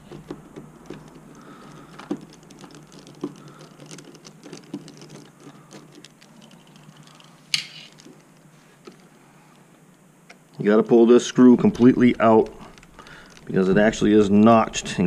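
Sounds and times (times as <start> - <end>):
clicks and taps on plastic parts: 0.0 - 6.2.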